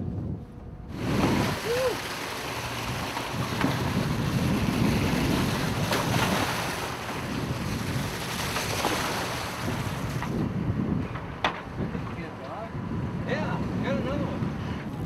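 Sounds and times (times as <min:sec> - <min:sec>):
wind buffeting microphone: 0:00.0 - 0:15.0
sea wash: 0:00.9 - 0:10.5.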